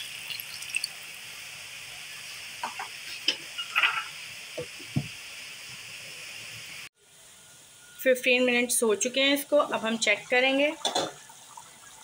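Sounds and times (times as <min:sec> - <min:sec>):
curry sizzling in a pot: 0:00.0 - 0:08.0.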